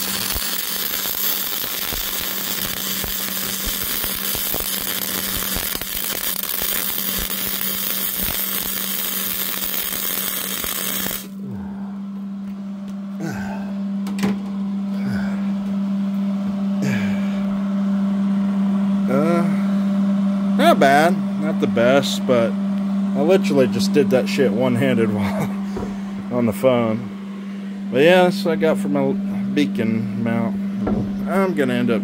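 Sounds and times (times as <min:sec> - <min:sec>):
welding arc crackling and hissing: 0:00.0 - 0:11.4
steady low hum: 0:00.0 - 0:32.0.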